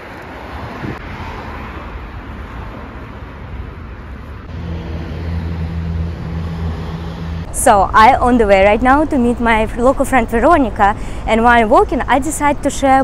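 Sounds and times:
road traffic: 0.0s - 13.0s
low engine hum: 4.4s - 9.8s.

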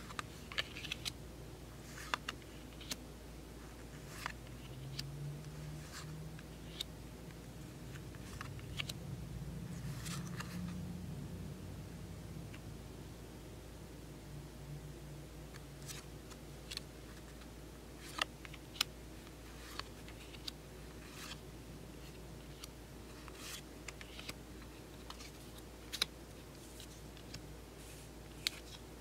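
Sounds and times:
trading cards rustling: 7.8s - 9.0s, 9.8s - 10.8s.

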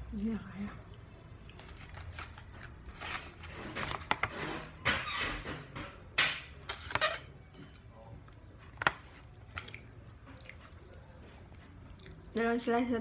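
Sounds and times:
chewing: 9.3s - 12.4s.

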